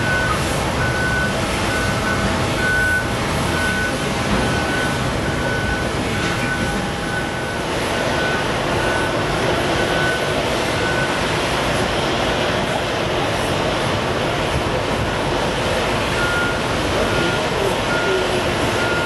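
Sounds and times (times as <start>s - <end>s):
reversing alarm beeping: 0.0s - 11.4s, 16.1s - 19.0s
jet engines roaring: 0.0s - 19.0s.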